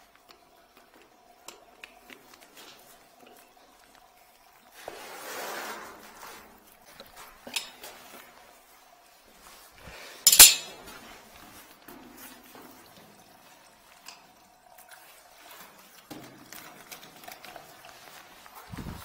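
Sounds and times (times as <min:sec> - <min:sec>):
handling noise: 0:10.3 - 0:10.8
sharp metallic clank: 0:10.3 - 0:10.8.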